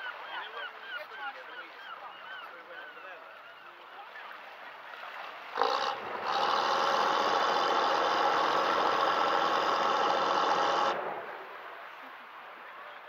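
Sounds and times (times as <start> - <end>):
ferry engine drone: 5.6 - 11.6.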